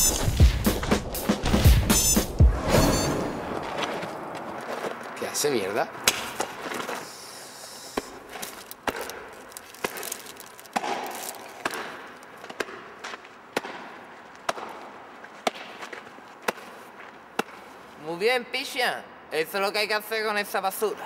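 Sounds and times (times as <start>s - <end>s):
steady background hiss: 5.5s - 8.8s.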